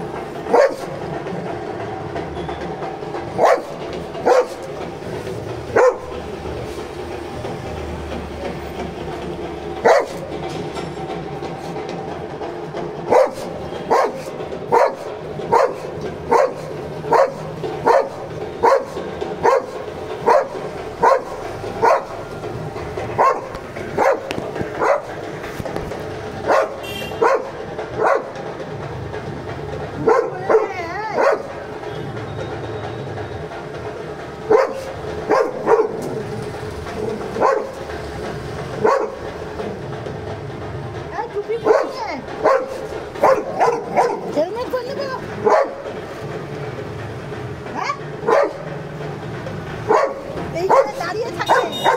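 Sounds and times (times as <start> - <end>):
dog barking: 0.5 - 1.0, 3.4 - 4.7, 5.7 - 6.2, 9.8 - 10.3, 13.0 - 22.2, 23.2 - 25.2, 26.4 - 28.4, 30.0 - 31.6, 34.5 - 36.1, 37.4 - 37.8, 38.8 - 39.2, 41.6 - 44.4, 45.4 - 45.9, 47.8 - 48.7, 49.9 - 51.9.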